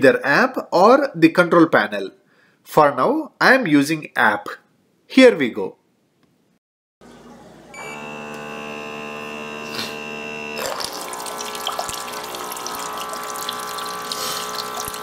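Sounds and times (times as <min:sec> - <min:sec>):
pump high whine: 0:07.0 - 0:15.0
pump humming: 0:07.0 - 0:15.0
water splashing into bowl: 0:10.6 - 0:15.0.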